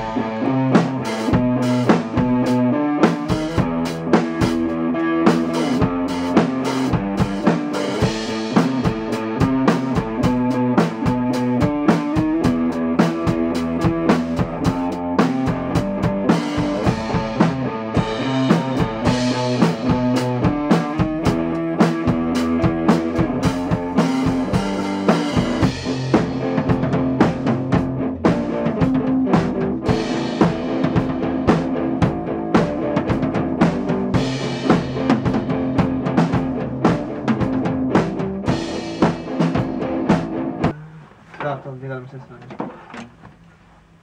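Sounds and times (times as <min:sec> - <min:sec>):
electric guitar: 0:00.0 - 0:41.0
drum kit playing: 0:00.0 - 0:41.3.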